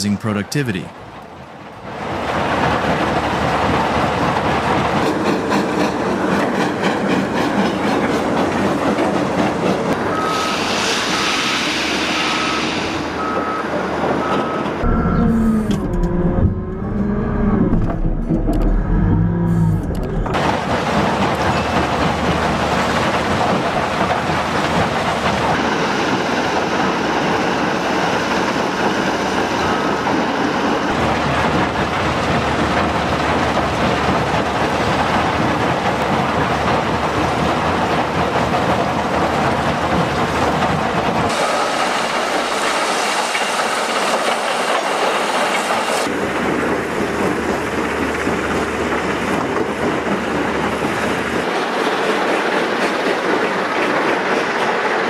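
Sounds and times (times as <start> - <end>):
diesel earthmoving machinery rumble: 14.2 - 24.6.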